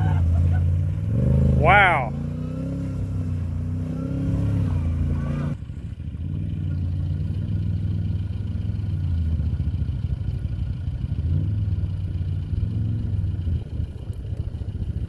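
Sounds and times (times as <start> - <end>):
off-road vehicle engine droning: 0.0 - 15.0.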